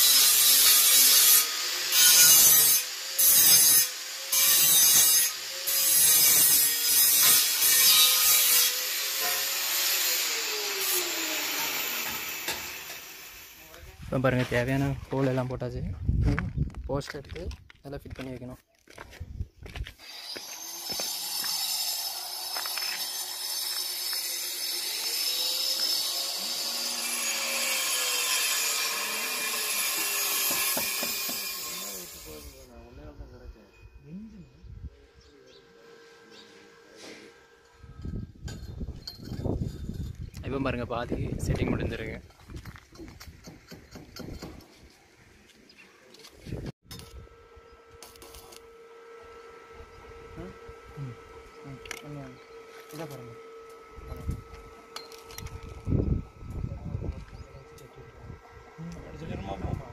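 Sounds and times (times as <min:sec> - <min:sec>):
angle grinder cutting steel pipe: 0:00.0 - 0:13.8, 0:20.0 - 0:32.8, 0:46.9 - 0:56.6.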